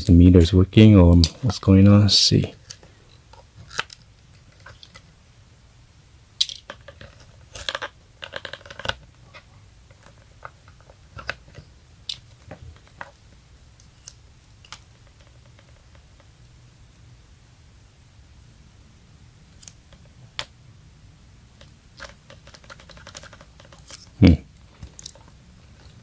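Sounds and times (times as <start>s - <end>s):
small clicks and rustles of handling: 2.6s - 5.1s, 6.4s - 13.2s, 13.8s - 16.3s, 21.6s - 26.0s.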